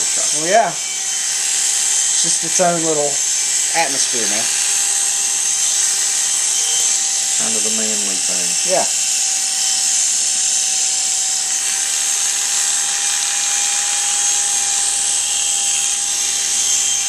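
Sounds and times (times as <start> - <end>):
electric hair clippers buzzing: 0.0 - 17.0.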